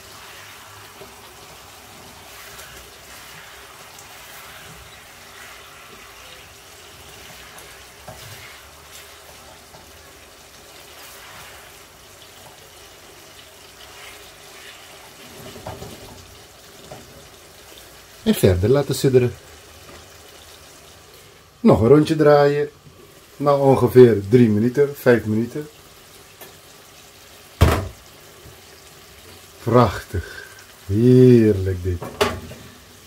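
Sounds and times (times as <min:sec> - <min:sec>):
spatula stirring and scraping: 0:00.0 - 0:17.8
sauce sizzling and bubbling in pan: 0:00.0 - 0:33.0.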